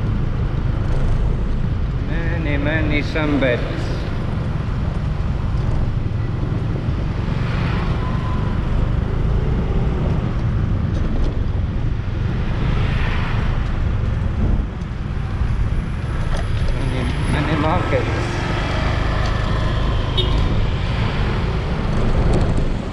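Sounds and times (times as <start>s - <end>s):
wind on microphone: 4.0s - 17.4s, 18.0s - 22.9s.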